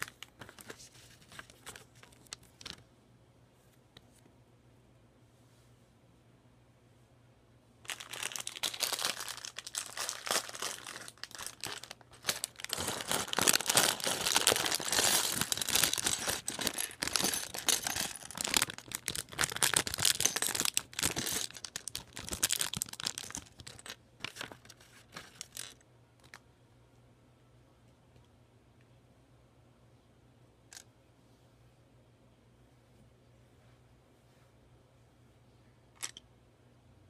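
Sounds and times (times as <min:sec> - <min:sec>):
plastic bag crinkling: 0:00.0 - 0:02.8, 0:07.9 - 0:25.8.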